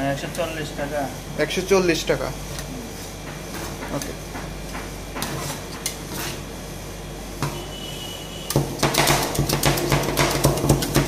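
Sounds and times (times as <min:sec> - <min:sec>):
spatulas chopping on metal plate: 0:08.5 - 0:11.0.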